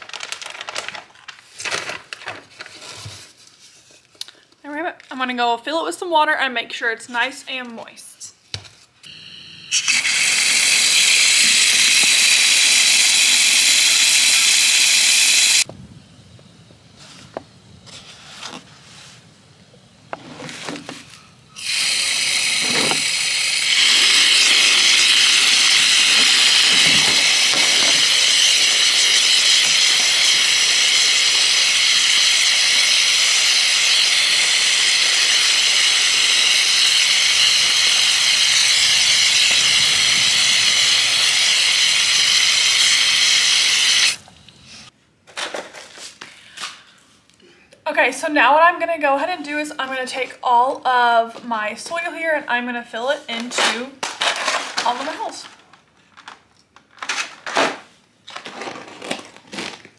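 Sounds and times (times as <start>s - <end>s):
water spraying into metal tub: 9.1s - 15.7s, 21.6s - 44.2s.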